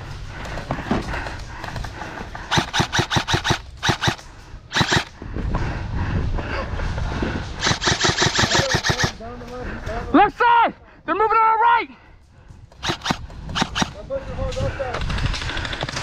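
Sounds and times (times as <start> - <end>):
airsoft gun rapid firing: 2.5 - 5.1, 7.6 - 9.2, 12.8 - 14.0, 15.1 - 16.0.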